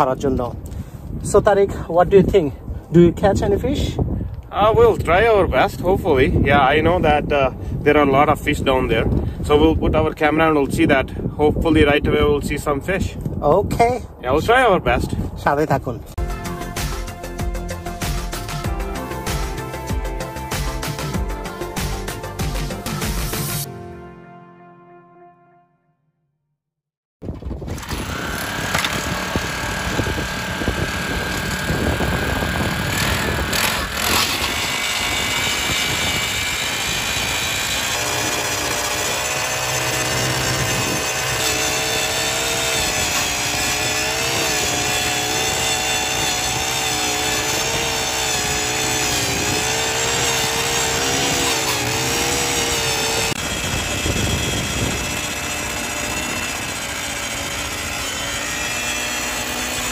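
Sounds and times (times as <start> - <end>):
ice auger engine drilling: 27.4 - 59.9.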